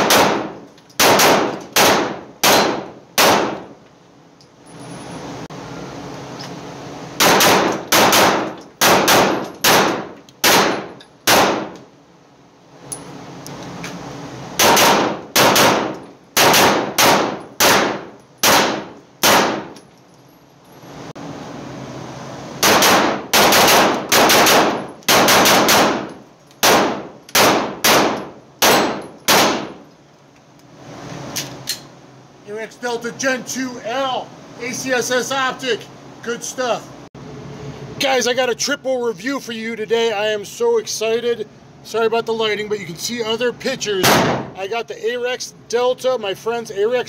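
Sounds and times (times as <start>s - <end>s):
pistol shots ringing: 0.0s - 3.6s, 7.2s - 11.8s, 14.6s - 19.8s, 22.6s - 29.8s, 44.0s - 44.5s
steady hum: 0.0s - 47.0s.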